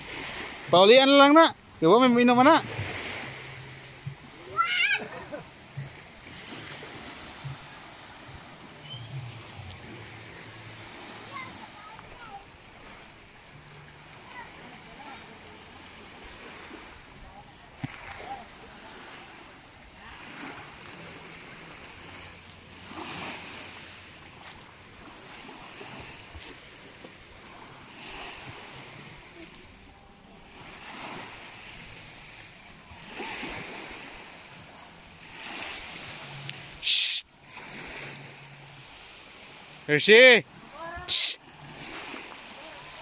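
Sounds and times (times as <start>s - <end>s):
small waves lapping on shore: 0.0s - 43.0s.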